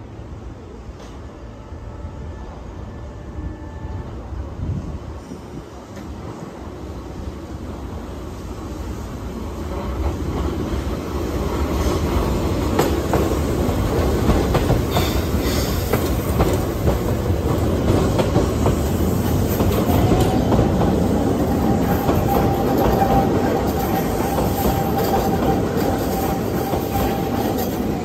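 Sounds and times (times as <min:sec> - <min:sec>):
train wheels clacking over rails: 0:09.4 - 0:28.0.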